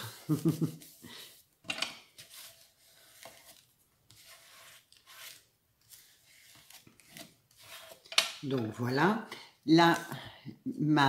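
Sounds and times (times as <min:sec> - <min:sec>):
paper rustling and rubbing: 0:00.0 - 0:08.1.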